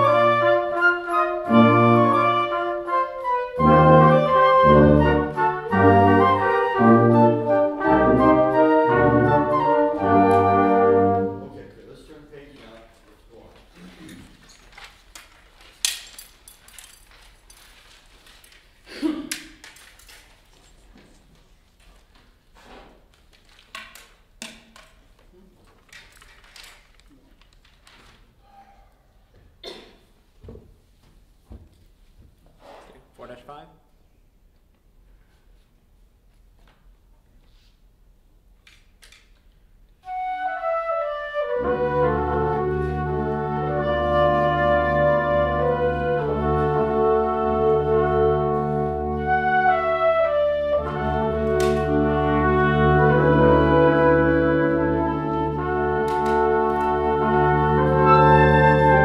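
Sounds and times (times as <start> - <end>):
woodwind melody: 0.0 - 11.7, 40.0 - 59.0
sustained low brass notes: 0.0 - 12.3, 40.1 - 59.0
pages turning: 13.6 - 24.2, 25.6 - 28.4.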